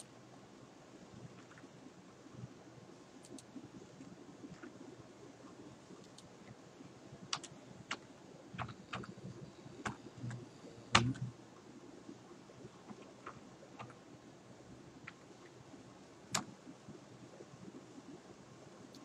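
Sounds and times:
typing on computer keyboard: 7.3s - 11.3s, 12.8s - 14.0s.

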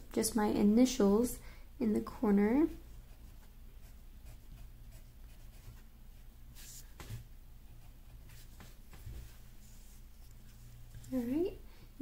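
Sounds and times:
pen scratching on paper: 3.0s - 9.9s.

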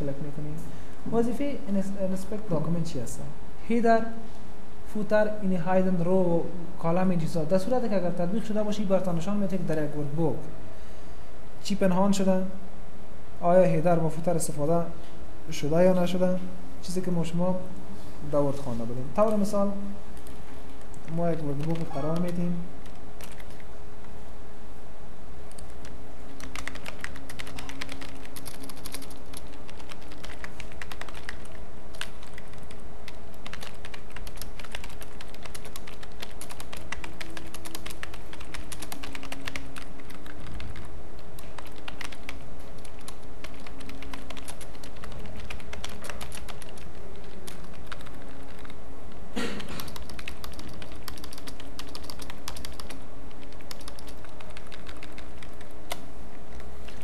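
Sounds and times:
steady background hum: 0.0s - 57.0s
computer keyboard typing: 20.2s - 23.7s, 25.5s - 48.8s, 49.6s - 57.0s.

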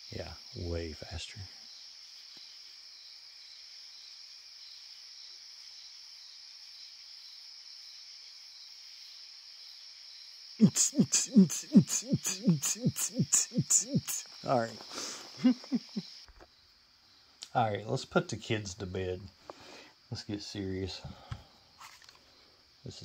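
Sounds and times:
night insects chirping: 0.0s - 23.0s
short falling voice-like calls: 10.6s - 16.0s.

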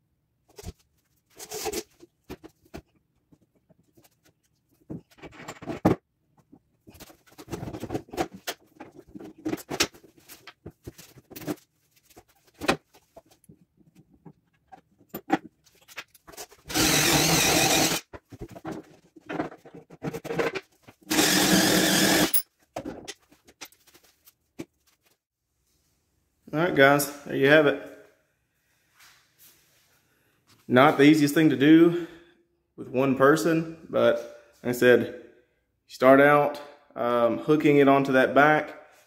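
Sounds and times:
knocks bumps and scraping: 0.5s - 16.8s, 18.0s - 21.1s
cordless impact driver: 16.7s - 18.0s, 21.1s - 22.4s.

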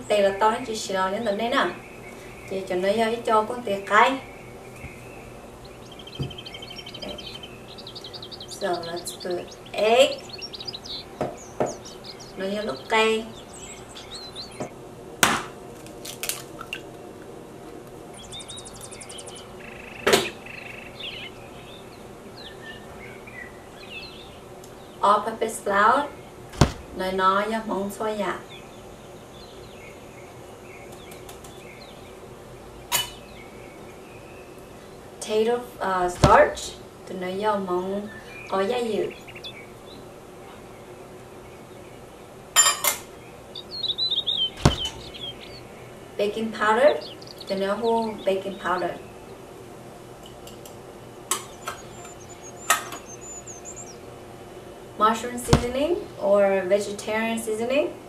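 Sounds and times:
faint birds chirping: 0.0s - 15.8s, 16.5s - 58.0s
short knock: 26.6s - 27.0s, 36.2s - 36.5s, 44.6s - 45.1s, 55.5s - 55.9s.

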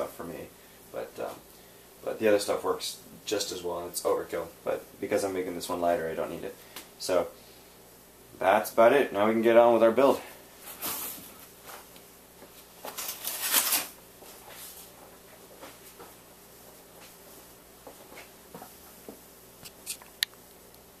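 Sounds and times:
rustling: 10.6s - 16.2s.

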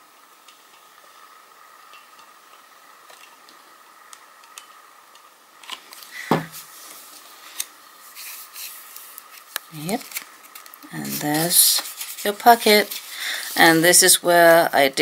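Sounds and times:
faint steady hum: 0.0s - 15.0s
paper rustling: 5.6s - 14.1s.

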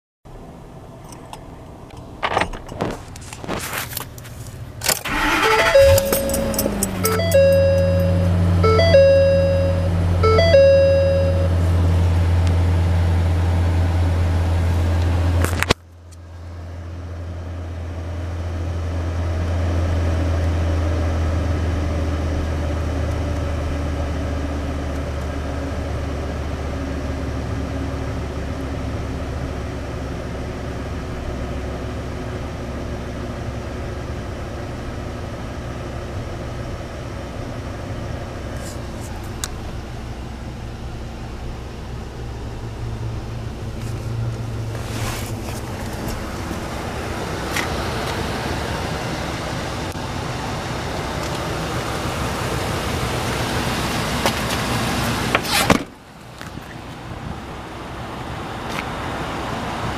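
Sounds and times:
truck engine idling: 4.0s - 15.4s, 16.2s - 59.8s
dashboard warning chime: 5.1s - 11.9s.

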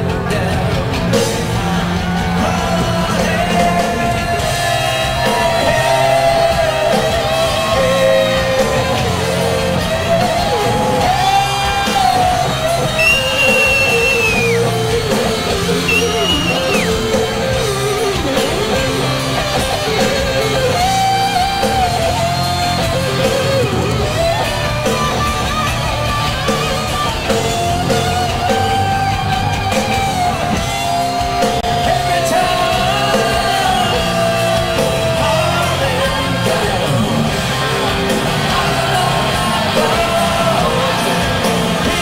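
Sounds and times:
live rock band playing: 0.0s - 42.0s
electric guitar solo: 3.5s - 32.1s.

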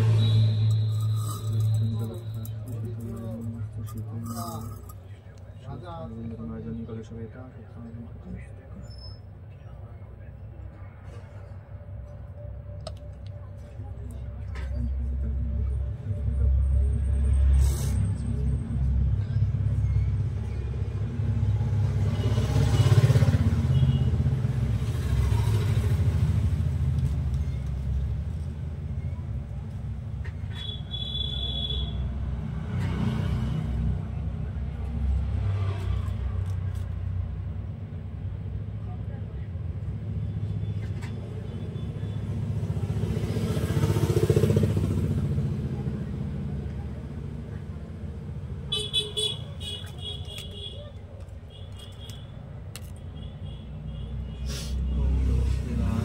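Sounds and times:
engine rumbling: 0.0s - 56.0s
motorcycle engine passing by: 42.3s - 47.1s.

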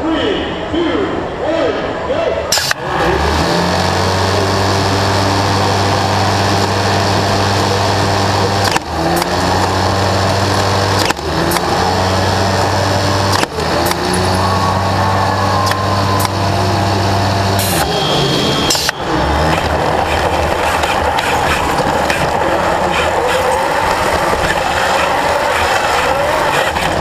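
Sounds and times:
motor shooter wheel humming: 2.6s - 27.0s
frisbee firing click: 18.7s - 19.0s.

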